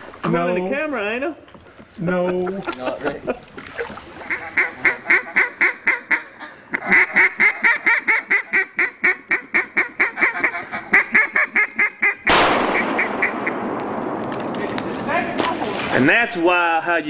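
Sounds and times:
duck call quacks: 0:04.2 - 0:13.6.

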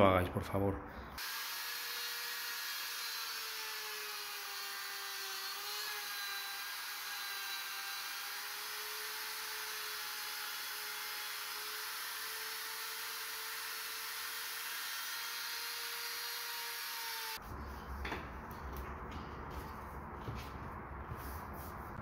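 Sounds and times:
router whining cutting wood: 0:01.2 - 0:17.4.

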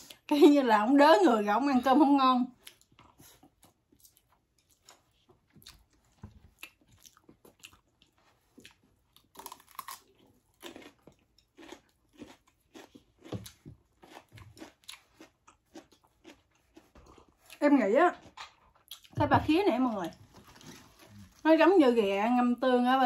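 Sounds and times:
chewing crunchy food: 0:02.5 - 0:19.2.

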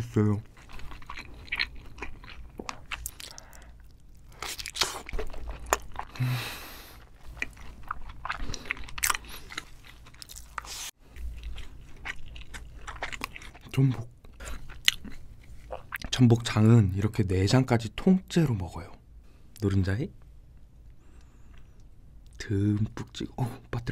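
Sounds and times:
wet chewing and biting: 0:00.5 - 0:06.2, 0:07.0 - 0:16.1.

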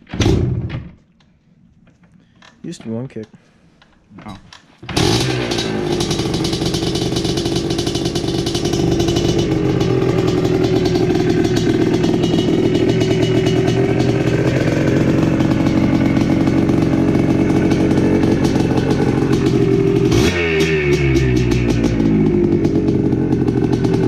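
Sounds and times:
two-stroke engine running: 0:04.9 - 0:24.0.

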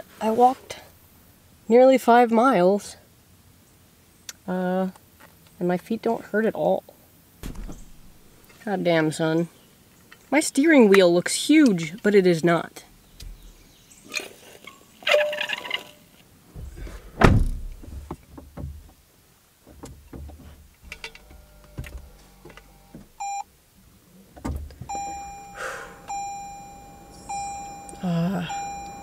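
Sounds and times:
car warning chime: 0:23.2 - 0:23.4, 0:24.9 - 0:29.0.

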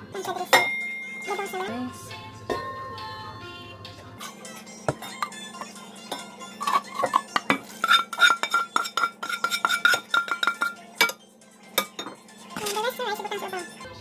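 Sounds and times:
ringing metallic tone: 0:00.6 - 0:01.9
spatula scraping metal pan: 0:06.6 - 0:10.8.

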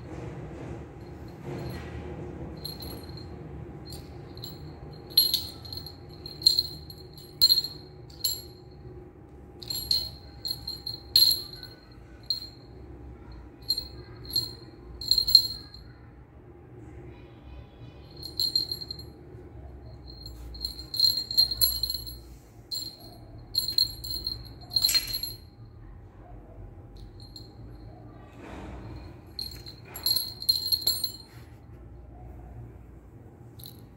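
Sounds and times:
jingle bell jingling: 0:02.6 - 0:08.8, 0:09.6 - 0:15.9, 0:18.1 - 0:25.6, 0:27.0 - 0:28.1, 0:28.8 - 0:31.6.

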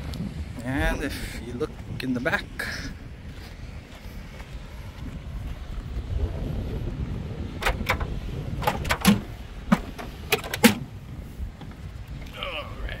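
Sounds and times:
wind rumbling on microphone: 0:00.0 - 0:13.0
pickup tailgate clicking and clunking: 0:07.6 - 0:10.9.

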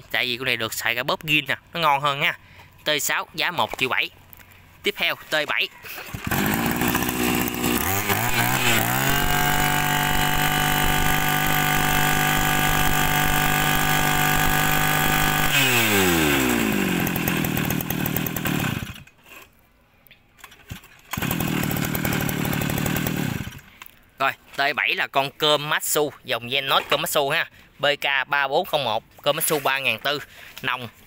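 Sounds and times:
brush cutter engine revving: 0:04.9 - 0:19.4, 0:20.4 - 0:23.8.

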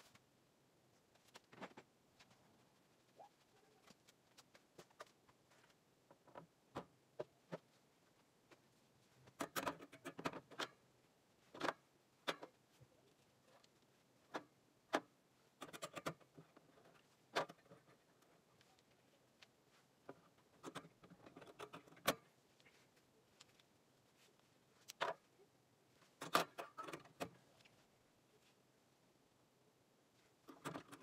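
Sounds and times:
metal sockets clicking: 0:14.3 - 0:16.4, 0:30.5 - 0:31.0.

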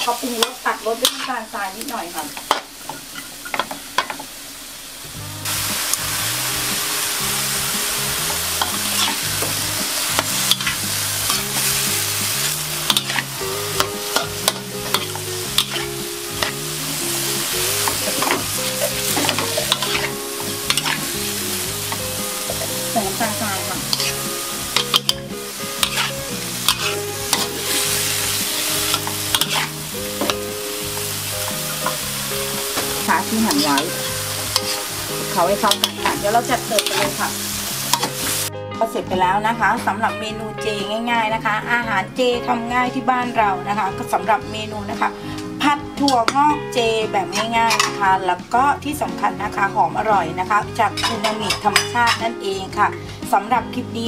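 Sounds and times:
vegetables sizzling in wok: 0:00.0 - 0:38.6, 0:43.4 - 0:54.0
metal spatula scraping pan: 0:00.2 - 0:01.5, 0:08.3 - 0:38.2, 0:47.3 - 0:48.0, 0:51.0 - 0:52.2.

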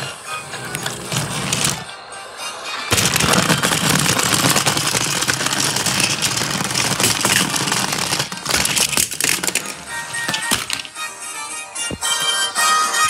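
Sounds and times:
toy train rattling whir: 0:00.0 - 0:02.0, 0:02.9 - 0:11.1.

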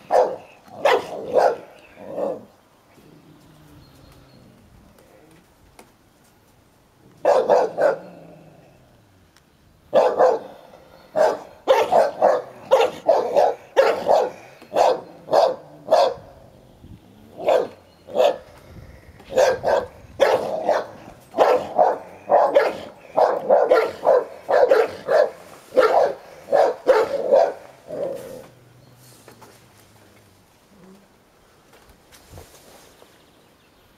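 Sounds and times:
dog barking in short barks: 0:00.0 - 0:01.7, 0:07.2 - 0:08.0, 0:10.0 - 0:10.5, 0:11.2 - 0:16.2, 0:19.3 - 0:27.6.

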